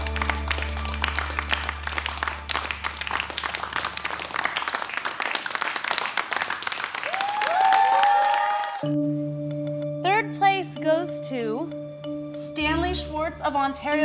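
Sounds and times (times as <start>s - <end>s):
low music notes: 0.0s - 4.2s, 8.8s - 14.0s
audience applauding: 0.0s - 8.9s.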